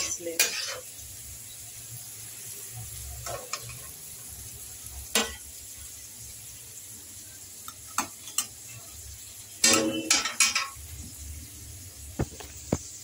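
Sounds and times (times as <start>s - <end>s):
metal spoon clinking against pan: 0.0s - 0.9s, 5.1s - 5.5s, 7.6s - 8.7s, 9.6s - 10.8s
oil sizzling in a pan: 0.0s - 13.0s.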